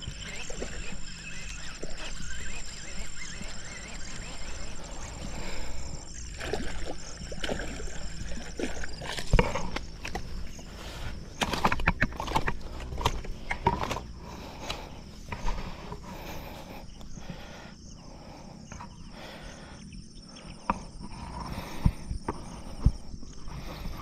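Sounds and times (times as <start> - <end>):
fish thrashing: 0.0 - 17.5.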